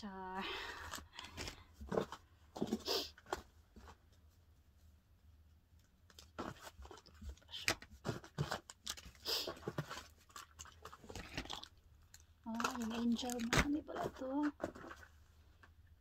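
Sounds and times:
crinkling rustles: 0.6 - 15.7
sachets and boxes being handled: 5.8 - 15.2.

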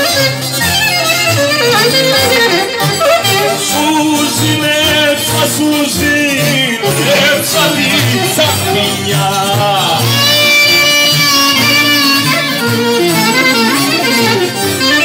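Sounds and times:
clarinet melody: 0.0 - 15.0
guitar accompaniment: 0.0 - 15.0
person singing: 3.4 - 11.3.

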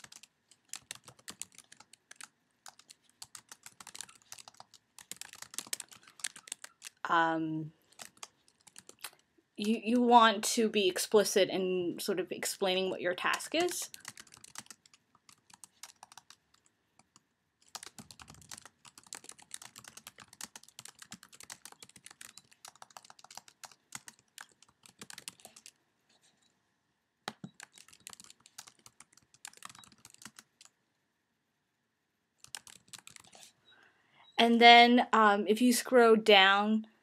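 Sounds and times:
fast keyboard typing: 0.0 - 7.2, 7.8 - 10.0, 13.1 - 25.8, 27.3 - 30.8, 32.4 - 33.4.

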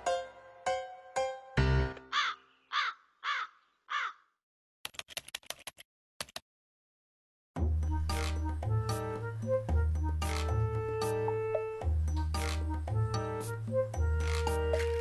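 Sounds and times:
crow cawing: 2.1 - 4.3
sharp typing-like clicks: 4.8 - 6.4.

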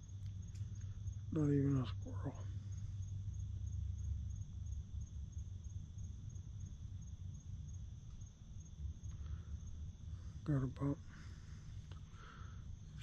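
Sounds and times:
steady high drone: 0.0 - 6.2
crickets chirping: 0.0 - 13.0.

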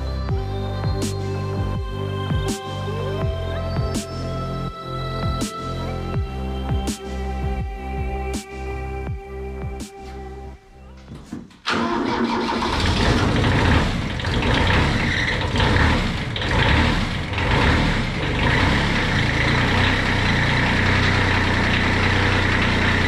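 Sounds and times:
diesel engine starting and idling: 11.6 - 23.0.

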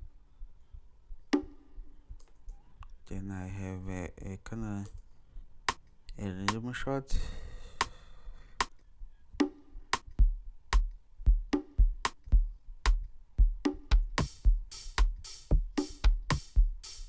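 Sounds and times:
conga and bongo hits: 9.4 - 17.0
deep kick drum beat: 9.4 - 17.0
open hi-hats: 9.4 - 17.0.

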